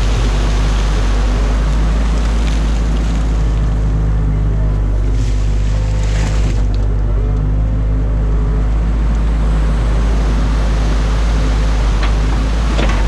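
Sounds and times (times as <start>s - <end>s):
stream water rushing: 0.0s - 7.6s, 8.6s - 13.0s
excavator diesel engine running: 0.0s - 13.0s.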